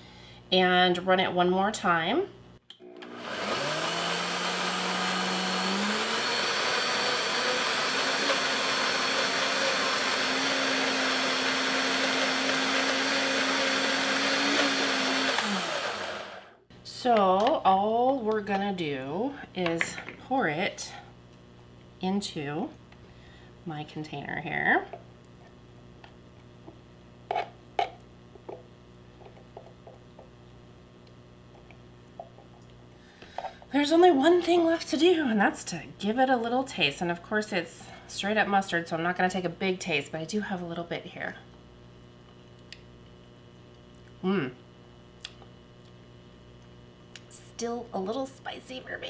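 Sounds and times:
blender motor running: 2.8s - 16.6s
low steady hum: 7.7s - 49.0s.

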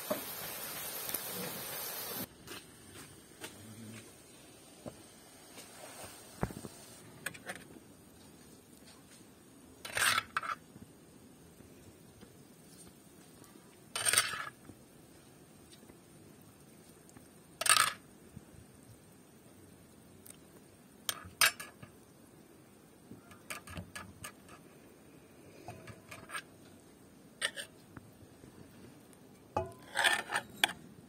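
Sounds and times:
metal spoon scraping griddle: 7.2s - 7.7s, 9.8s - 10.6s, 14.0s - 14.6s, 23.3s - 24.6s, 25.6s - 26.5s, 27.4s - 27.9s, 29.6s - 30.9s.

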